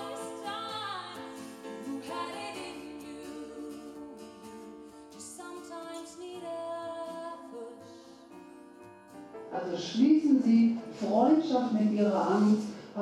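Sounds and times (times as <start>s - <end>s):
woman singing lead: 0.0s - 9.2s
acoustic guitar: 0.0s - 13.0s.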